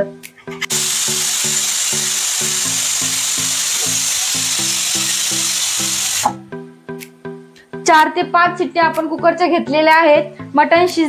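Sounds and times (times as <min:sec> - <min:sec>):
background music with steady beat: 0:00.0 - 0:11.0
pressure cooker whistling: 0:00.7 - 0:06.4.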